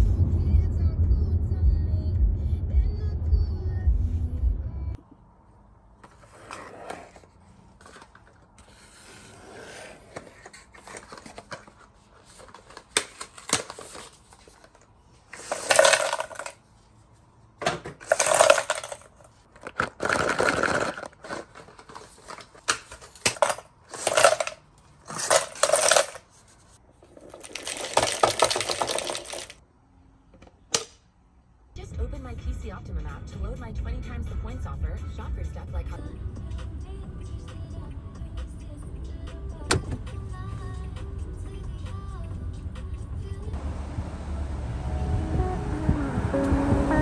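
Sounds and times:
handling sounds: 6.0s - 29.6s
coffee capsules clattering into box: 15.4s - 16.6s, 18.0s - 26.2s, 27.2s - 29.6s.

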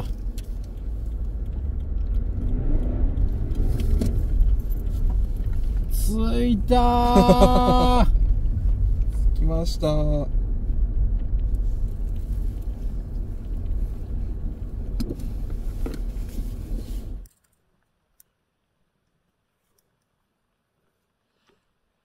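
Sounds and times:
faint ticks: 0.0s - 5.9s
engine and tyre rumble: 0.0s - 17.4s.

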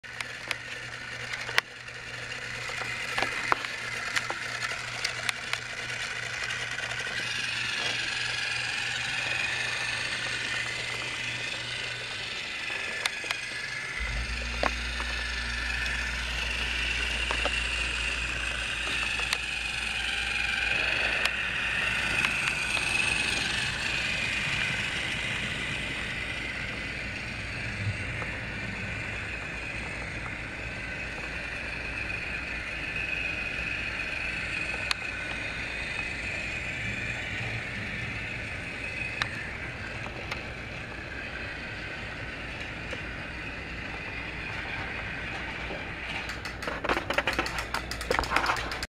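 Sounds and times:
wheels clicking on track: 0.0s - 48.9s
toy train motor whirring: 0.1s - 48.9s.

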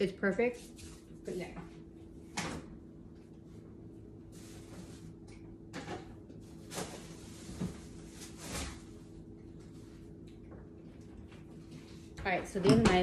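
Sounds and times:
faint steady hum: 0.0s - 13.0s
knocks and clunks in kitchen: 5.5s - 7.9s, 12.2s - 13.0s.

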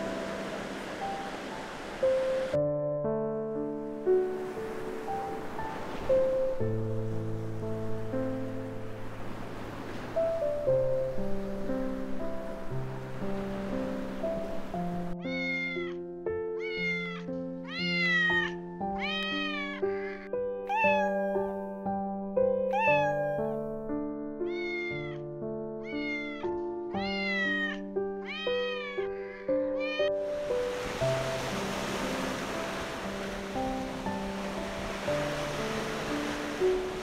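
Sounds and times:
soft instrumental music: 0.0s - 37.0s
cat meowing: 15.2s - 16.0s, 16.6s - 21.6s, 22.7s - 23.6s, 24.4s - 30.2s.

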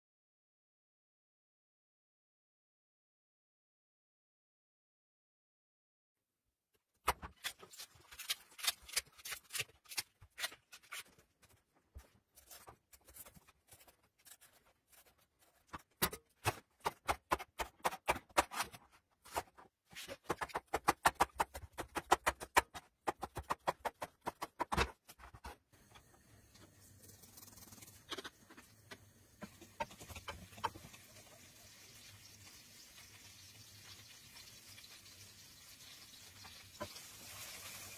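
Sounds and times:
knife chopping on cutting board: 16.0s - 18.8s, 20.2s - 25.0s
garlic sizzling in oil: 29.8s - 37.9s.

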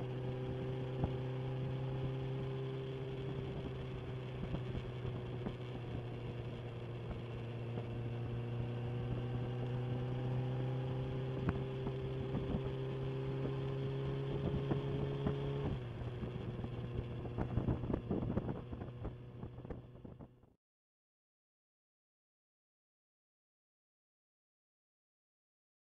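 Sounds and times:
motorcycle engine running: 0.0s - 20.5s.

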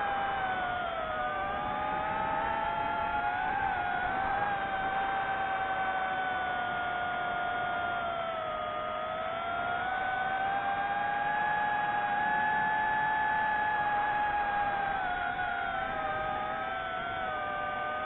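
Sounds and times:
drone propellers whining: 0.0s - 18.0s.

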